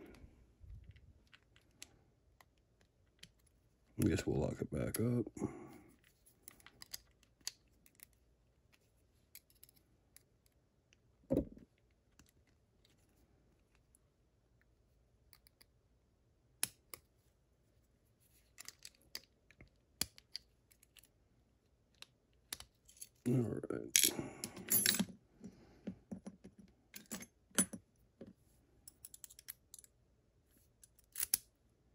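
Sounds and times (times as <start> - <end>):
small lock parts clicking: 6.4 - 8.2, 9.3 - 10.3, 28.9 - 30.0, 30.8 - 31.5.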